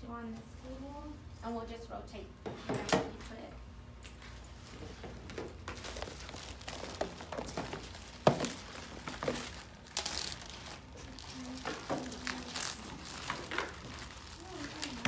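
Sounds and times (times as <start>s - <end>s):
plastic bags crinkling: 5.6s - 15.0s.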